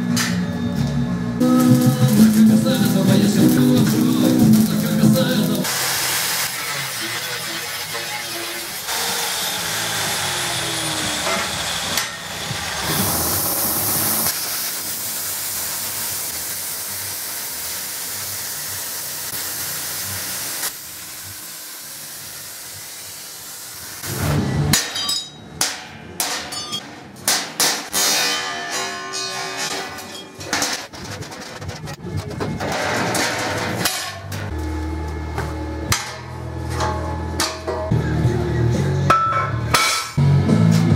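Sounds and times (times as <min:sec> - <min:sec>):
angle grinder grinding steel: 0:01.4 - 0:15.2
plasma cutter hissing: 0:01.4 - 0:24.2.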